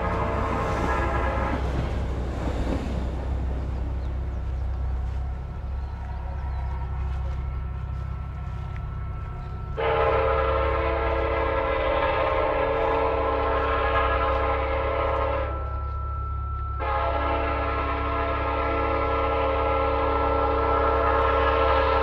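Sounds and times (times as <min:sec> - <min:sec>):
train horn blast: 0:00.0 - 0:02.2, 0:06.3 - 0:15.9, 0:16.8 - 0:22.0
train rumbling: 0:00.0 - 0:22.0.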